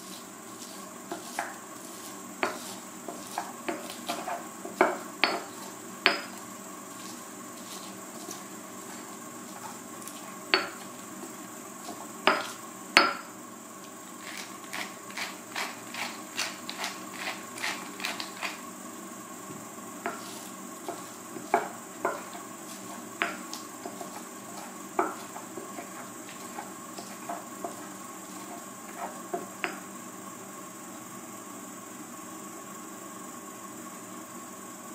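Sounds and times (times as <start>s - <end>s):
stone pestle pounding in mortar: 2.4s - 6.4s, 10.5s - 10.9s, 11.9s - 13.3s, 20.9s - 27.9s.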